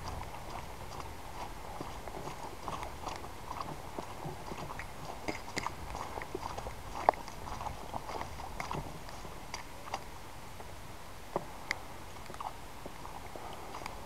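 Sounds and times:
footsteps on wet grass: 0:00.0 - 0:10.1.

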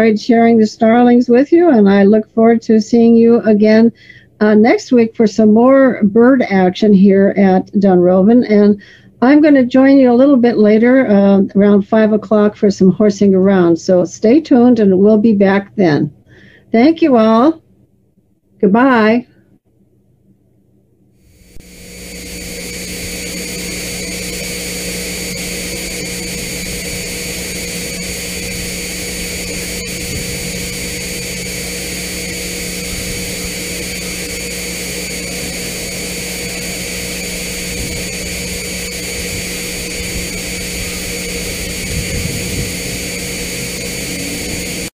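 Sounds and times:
thin whine: 0:21.3 - 0:45.0
constant hum: 0:21.4 - 0:44.9
steady rushing noise: 0:21.5 - 0:44.9.

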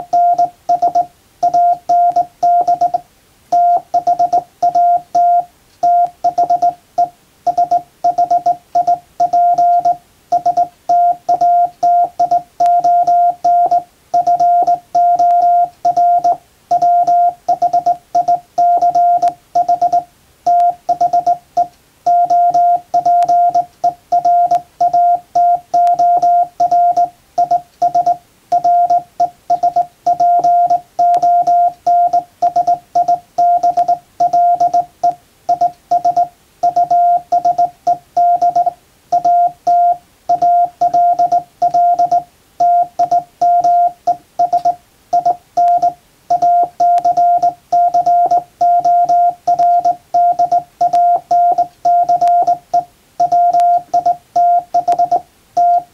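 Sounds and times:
morse code tone: 0:00.0 - 0:55.9.

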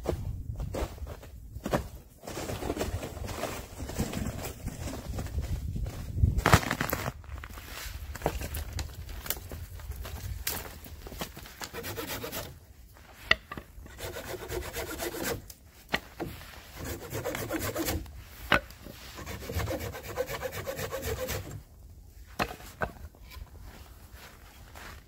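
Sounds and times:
hand saw cutting branch: 0:11.6 - 0:12.5, 0:13.8 - 0:15.5, 0:16.2 - 0:18.1, 0:19.1 - 0:21.6.

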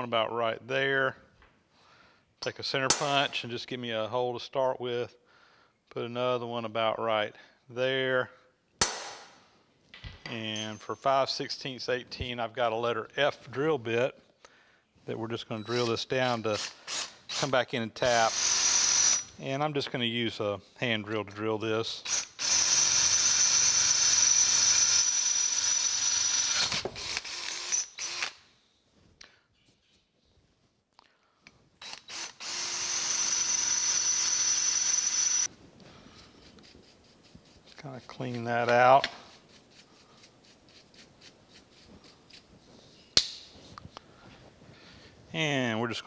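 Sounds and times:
sharp knock: 0:08.8 - 0:09.3
drill boring into metal: 0:18.1 - 0:19.3, 0:22.0 - 0:28.4, 0:31.8 - 0:35.5
brush scratching and rubbing: 0:36.1 - 0:44.6.

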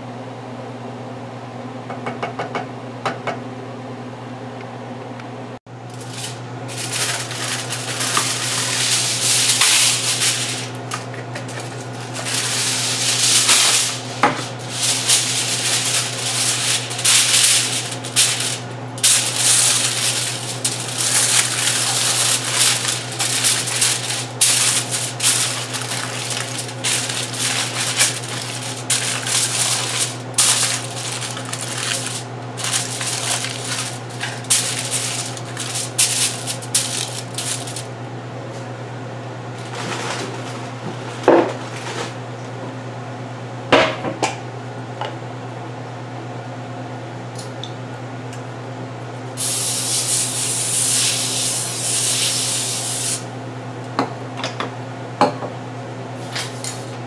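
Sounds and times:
aluminium foil crinkling: 0:05.9 - 0:37.9, 0:39.6 - 0:40.6, 0:49.4 - 0:53.2.

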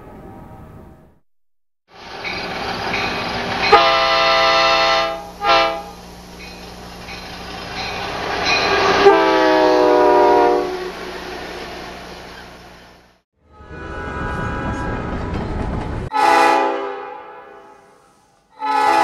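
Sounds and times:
rail rumble: 0:01.9 - 0:16.7
train air horn blasts: 0:03.7 - 0:06.0, 0:08.7 - 0:11.1, 0:16.1 - 0:19.0.

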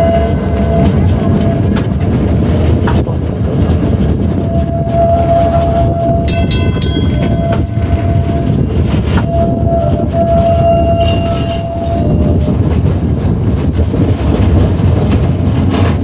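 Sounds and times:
streetcar rumbling on rails: 0:00.0 - 0:16.0
high-pitched ringing squeals: 0:04.6 - 0:12.6.

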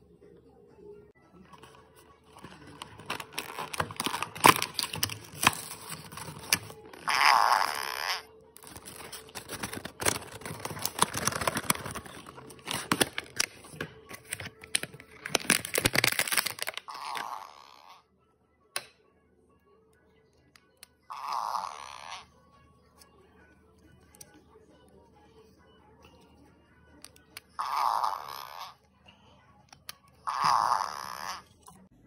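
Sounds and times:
loud packaging noises: 0:01.6 - 0:17.4
packaging crinkling and tearing: 0:02.3 - 0:07.7, 0:08.6 - 0:17.3.

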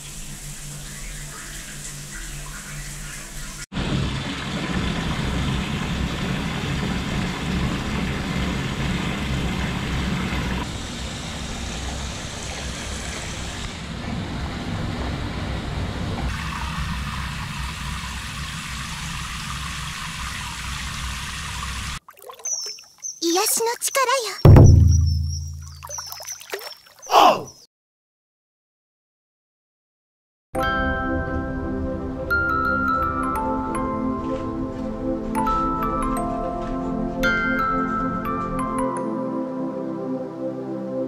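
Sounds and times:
shower water spraying: 0:00.0 - 0:13.8, 0:16.3 - 0:22.0.

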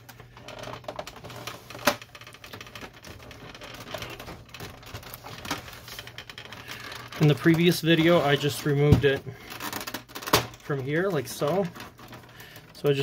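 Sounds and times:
plastic clicks and rattles: 0:00.0 - 0:13.0.

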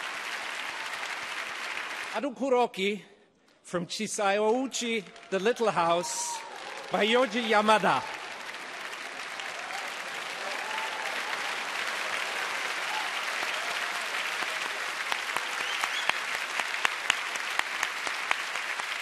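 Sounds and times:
loud individual claps: 0:00.0 - 0:02.2, 0:06.3 - 0:19.0
large audience applauding: 0:00.0 - 0:02.3, 0:04.8 - 0:19.0.

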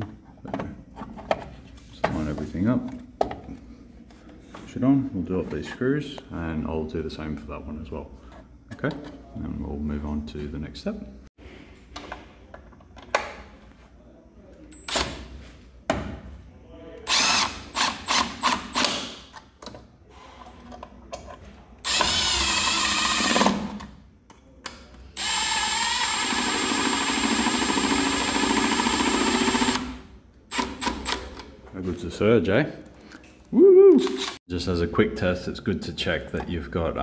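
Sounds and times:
power drill driving screws: 0:17.1 - 0:19.1, 0:21.9 - 0:23.5, 0:25.2 - 0:29.9, 0:34.0 - 0:34.4.

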